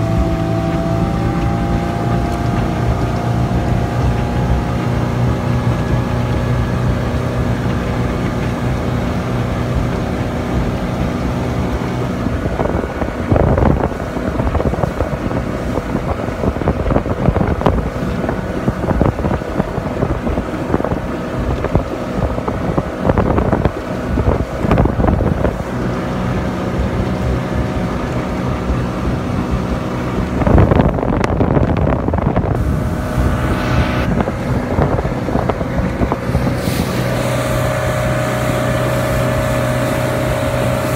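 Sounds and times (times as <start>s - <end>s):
motorboat engine running: 0.0s - 40.9s
rushing water: 0.0s - 40.9s
wind on microphone: 0.0s - 40.9s.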